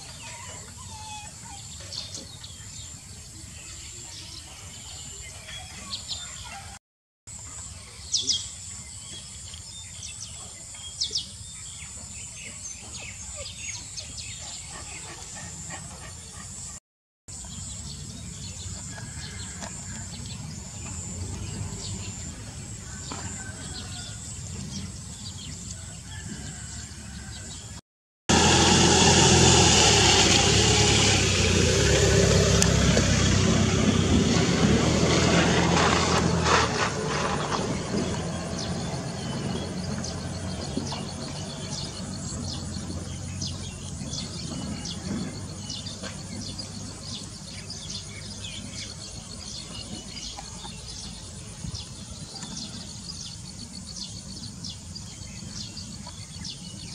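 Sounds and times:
birds chirping: 0:07.6 - 0:27.7, 0:28.6 - 0:56.9
engine humming steadily: 0:17.4 - 0:26.5, 0:28.3 - 0:56.9.

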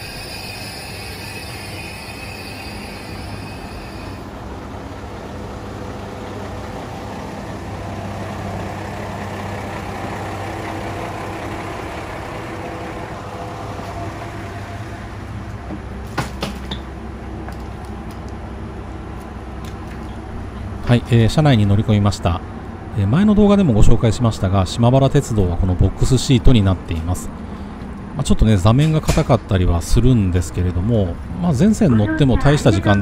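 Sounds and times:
high whine: 0:00.0 - 0:04.4
diesel engine idling: 0:04.2 - 0:16.0.

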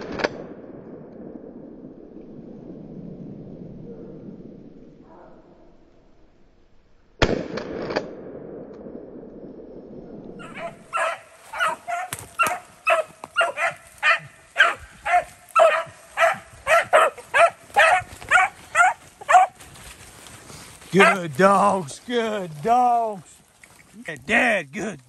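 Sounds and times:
shotgun shot: 0:07.2 - 0:08.9
beagles barking: 0:10.4 - 0:19.9, 0:20.8 - 0:21.8.

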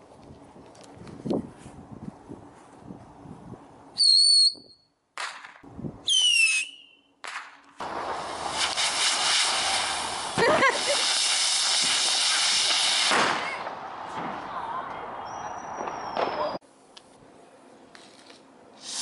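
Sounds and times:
whistling fireworks: 0:04.0 - 0:04.8, 0:06.1 - 0:16.6, 0:18.8 - 0:19.0
fountain firework hissing: 0:07.8 - 0:13.9, 0:18.8 - 0:19.0.

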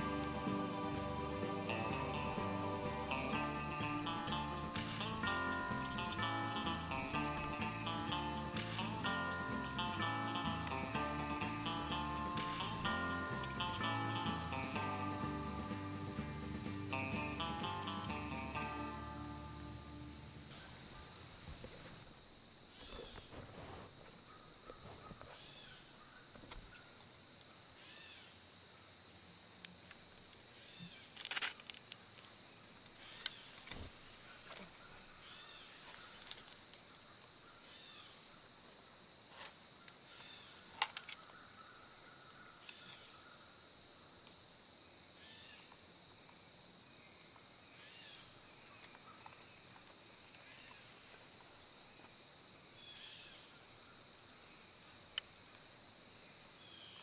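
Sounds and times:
high-pitched insect chorus: 0:00.0 - 0:57.0
sharp snaps and rustles: 0:29.6 - 0:37.7, 0:38.6 - 0:41.6, 0:48.8 - 0:52.2.

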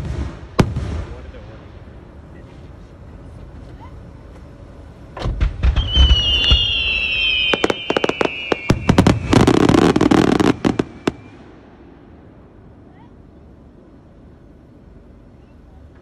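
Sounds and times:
firework cracks and crackling: 0:00.0 - 0:01.5, 0:05.2 - 0:11.4
deep firework booms: 0:00.0 - 0:01.9, 0:05.2 - 0:11.4
falling firework whistles: 0:05.3 - 0:11.6.

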